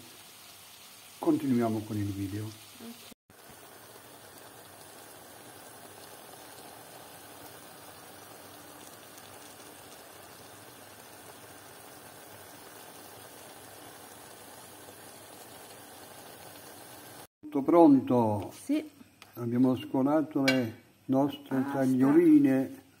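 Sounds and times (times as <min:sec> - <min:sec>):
food simmering in a pan: 0:00.0 - 0:17.3.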